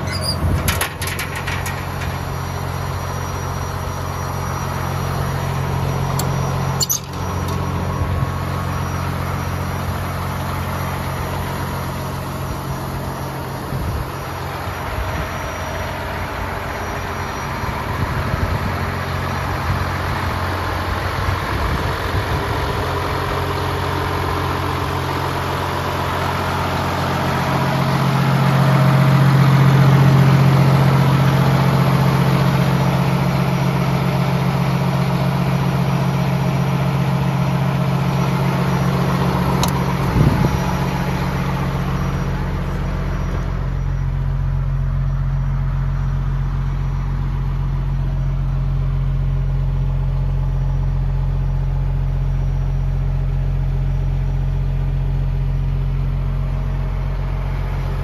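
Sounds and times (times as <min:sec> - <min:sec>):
engine knock: 0:00.0 - 0:43.8
diesel truck engine idling: 0:00.0 - 0:58.0.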